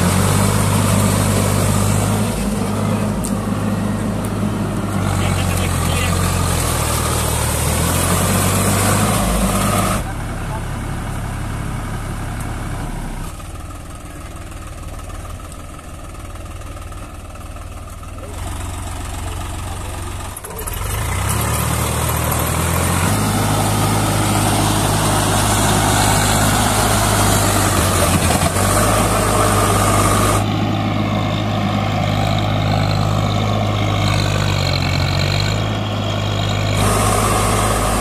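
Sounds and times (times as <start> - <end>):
tractor diesel engine under load: 0.0 - 38.0
wheels spinning in mud: 18.2 - 38.0.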